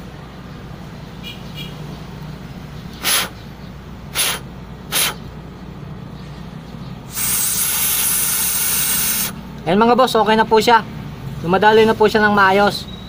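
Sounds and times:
puffs of air blown by mouth: 0:03.0 - 0:03.4, 0:04.1 - 0:05.3, 0:07.1 - 0:09.4
long steady blow through bolt: 0:07.1 - 0:09.4.

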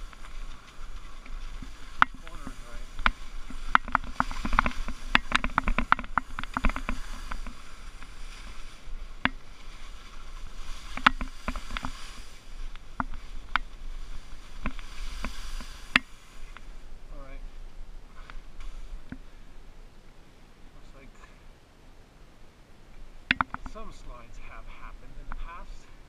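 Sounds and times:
skis scraping over slushy snow: 0:00.0 - 0:16.6
sharp clicks and knocks: 0:03.0 - 0:08.1, 0:23.3 - 0:23.8.

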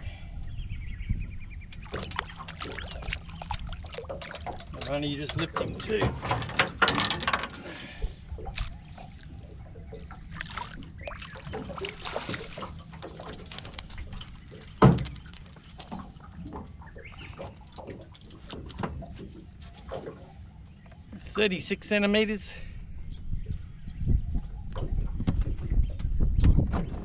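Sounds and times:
knocks and rattles in boat: 0:01.7 - 0:08.8, 0:09.4 - 0:20.9, 0:24.2 - 0:27.0
water splashing: 0:01.8 - 0:20.4.

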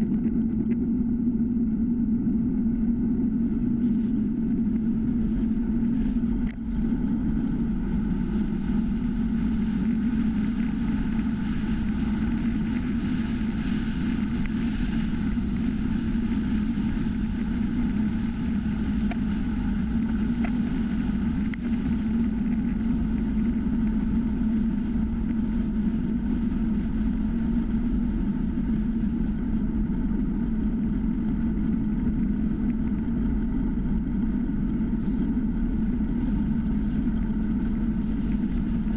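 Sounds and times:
bicycle tyre rumble on asphalt: 0:00.0 - 0:38.9
wind rush: 0:00.0 - 0:38.9
faint ticks: 0:20.3 - 0:20.6, 0:21.2 - 0:24.0.

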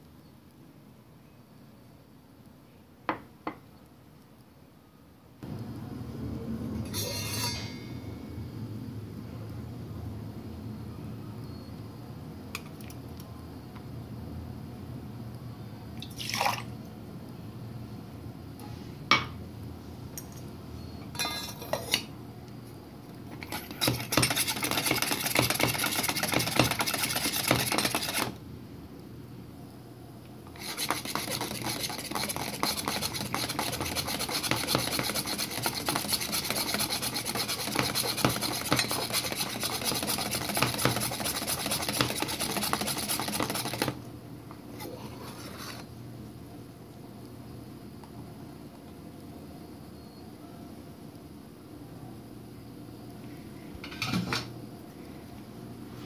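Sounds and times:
milk frother plunger churning: 0:23.4 - 0:28.4, 0:30.5 - 0:44.0.

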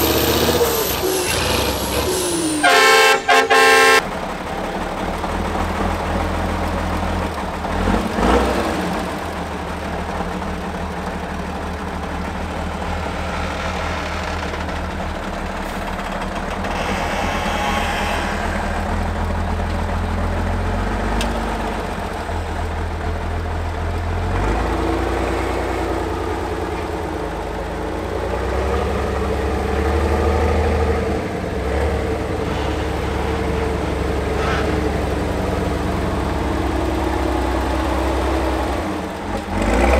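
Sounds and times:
diesel truck engine under load: 0:00.0 - 0:39.9.

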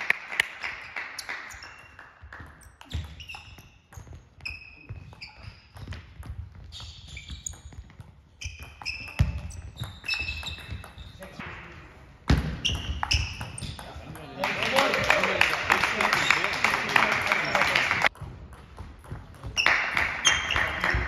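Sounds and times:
shoes squeaking: 0:00.8 - 0:11.4, 0:12.3 - 0:14.1, 0:19.0 - 0:21.0.

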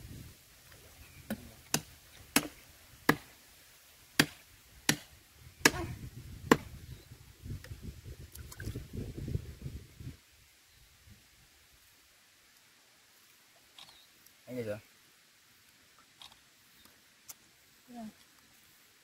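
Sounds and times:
blade chopping into wood: 0:01.3 - 0:03.3, 0:04.2 - 0:05.9, 0:06.5 - 0:06.7.

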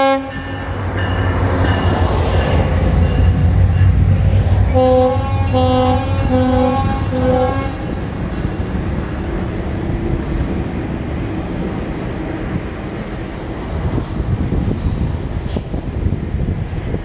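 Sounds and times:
locomotive horn blasts: 0:00.0 - 0:00.7, 0:04.7 - 0:08.0
passenger coaches rumbling on track: 0:00.0 - 0:17.0.

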